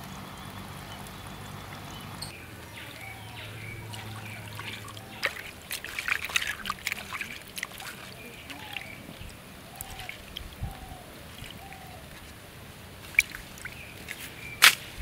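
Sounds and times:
water splashing into bowl: 2.6s - 12.4s, 13.0s - 14.8s.

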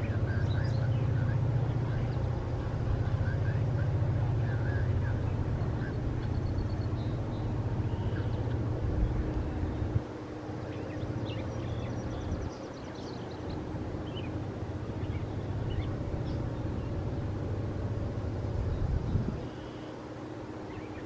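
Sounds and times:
faint bird chirps: 4.6s - 8.6s, 18.6s - 20.0s.

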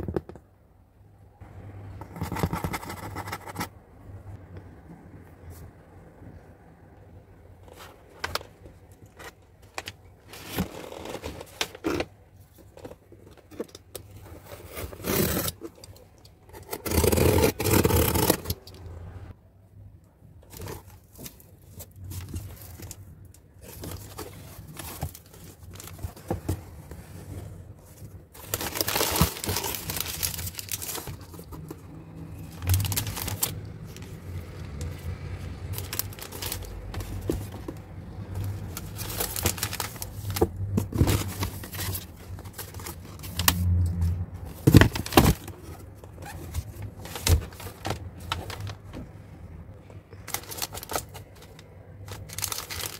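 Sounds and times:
packing tape tearing: 16.6s - 18.7s, 28.4s - 31.4s
tissue paper rustling: 23.6s - 31.6s, 32.4s - 34.2s, 35.6s - 37.7s, 38.3s - 43.4s, 50.1s - 51.4s, 52.1s - 52.9s.

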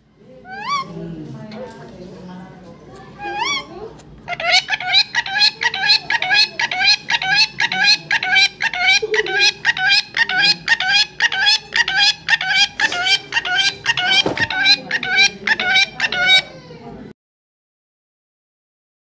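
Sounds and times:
parakeet calling: 0.4s - 1.0s, 3.2s - 16.6s.

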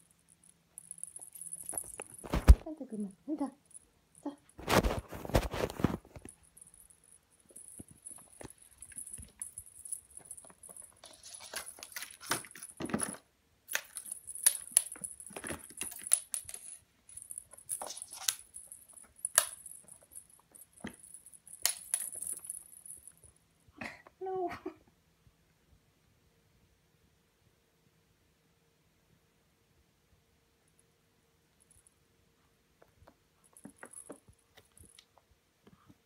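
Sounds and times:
plastic cat toy rattling: 7.5s - 23.0s.

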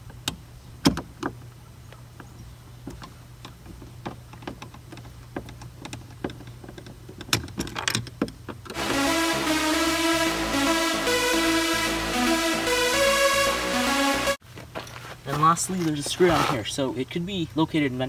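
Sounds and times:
music: 8.8s - 14.4s.

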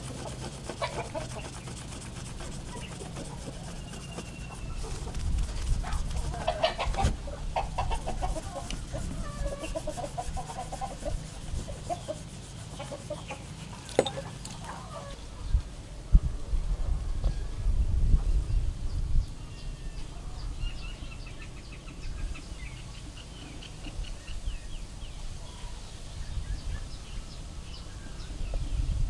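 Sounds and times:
chickens clucking: 0.0s - 15.6s.

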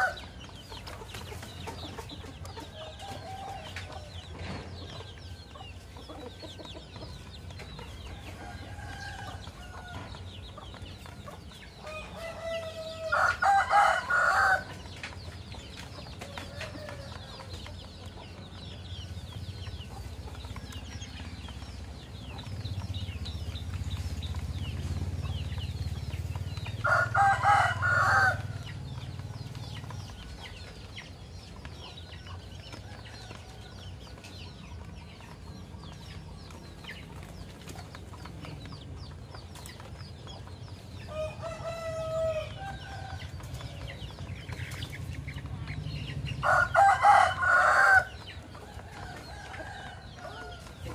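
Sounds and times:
rooster crowing: 11.8s - 14.7s, 26.8s - 28.6s, 46.4s - 48.2s.

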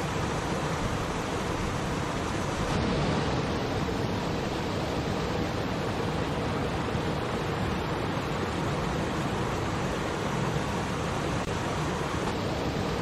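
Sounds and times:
waterfall splashing over rocks: 0.0s - 13.0s.

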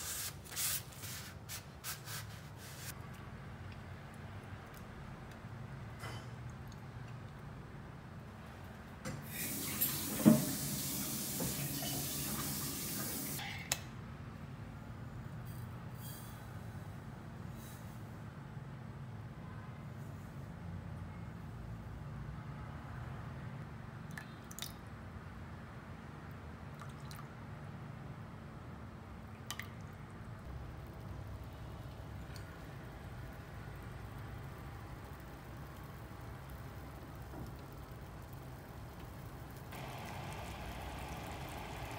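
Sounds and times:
small clicks and drips: 6.3s - 7.6s, 24.0s - 25.0s, 26.2s - 27.4s, 29.4s - 41.9s
tap running water: 9.2s - 13.4s, 39.8s - 41.9s.

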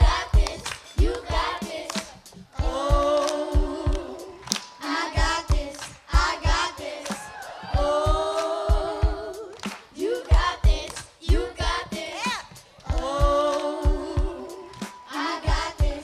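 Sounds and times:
children's choir singing: 0.0s - 16.0s
hand claps: 0.4s - 2.4s, 3.1s - 7.4s, 8.3s - 11.2s, 12.3s - 13.8s, 14.6s - 15.9s.

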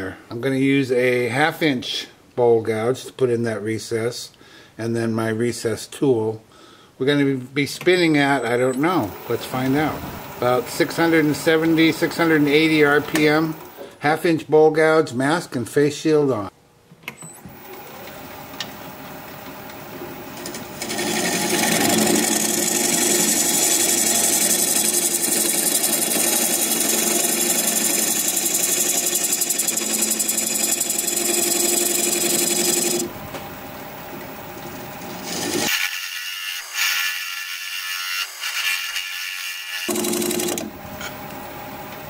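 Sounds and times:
wood lathe gouge scraping wood: 8.8s - 13.8s, 20.8s - 33.1s, 35.2s - 40.7s.

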